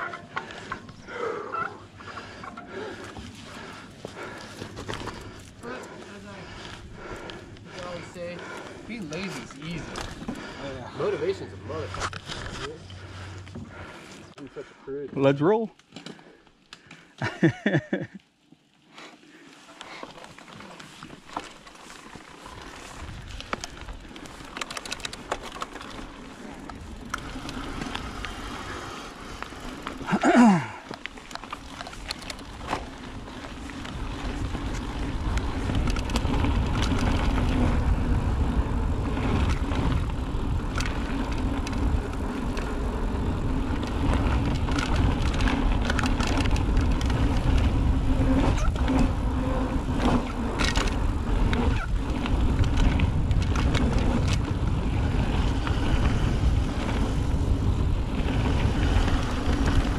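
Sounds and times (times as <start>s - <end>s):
bike rattling over dirt: 0.0s - 14.3s, 15.2s - 59.9s
wind rumble on microphone: 32.0s - 59.9s.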